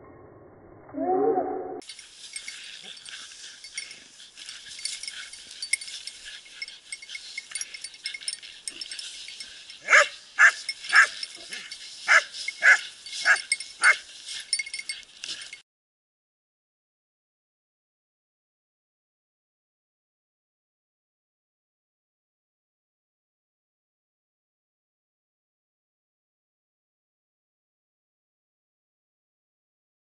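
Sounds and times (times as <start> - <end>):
steady high hiss: 1.8 - 15.2
small dogs yapping: 4.7 - 14.8.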